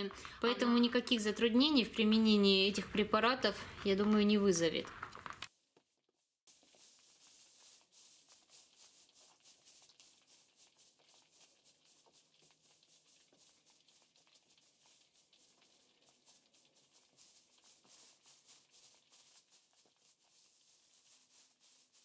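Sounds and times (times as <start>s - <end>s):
dry straw rustling: 6.5s - 22.0s.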